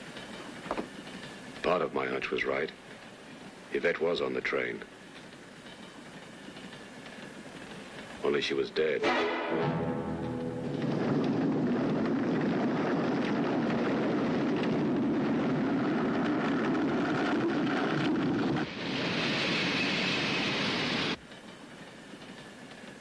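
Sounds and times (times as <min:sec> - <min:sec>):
avalanche rushing noise: 0:09.0 - 0:21.2.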